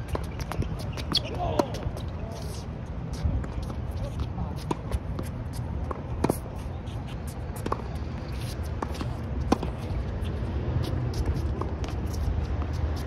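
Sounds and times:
racquets striking tennis ball: 7.4 - 13.0.

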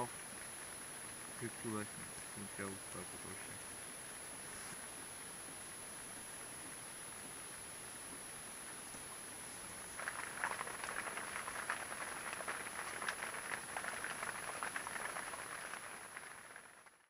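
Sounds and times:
steady hiss: 0.0 - 16.9
rain pattering on fabric awning: 10.0 - 17.0.

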